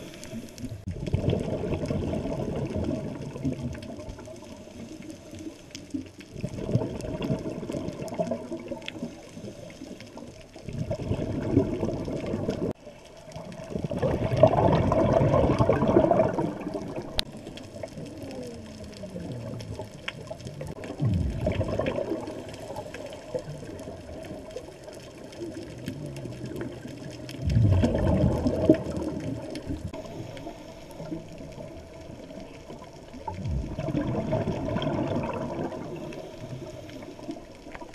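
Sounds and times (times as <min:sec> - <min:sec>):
steady hiss: 0:00.0 - 0:00.9, 0:03.9 - 0:06.3, 0:08.6 - 0:10.6, 0:16.8 - 0:27.5, 0:28.8 - 0:33.8, 0:35.6 - 0:37.9
scuba exhalation bubbles: 0:00.0 - 0:37.9
faint clicks: 0:16.7 - 0:33.4.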